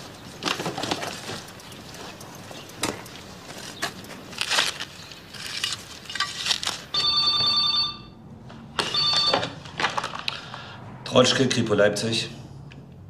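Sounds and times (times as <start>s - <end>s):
shovel digging in loose earth: 2.8s - 6.9s
electronic telephone ringing: 6.9s - 8.2s, 8.8s - 9.6s.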